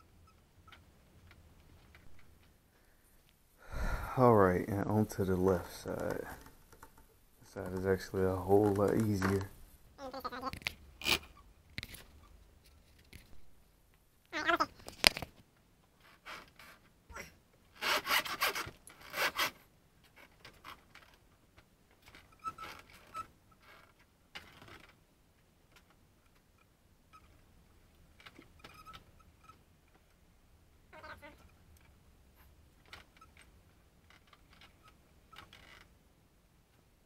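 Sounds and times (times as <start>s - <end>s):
rubber grip rubbing and scraping: 4.8s - 13.6s, 17.7s - 21.2s.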